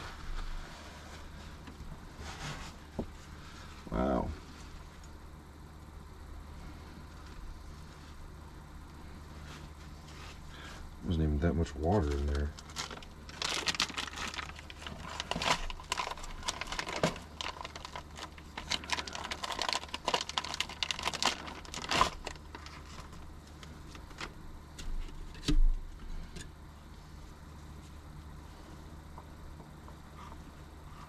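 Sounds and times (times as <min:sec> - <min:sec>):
plastic packet crinkling: 0:12.0 - 0:24.3
dry food crumbling into bowl: 0:12.6 - 0:23.2.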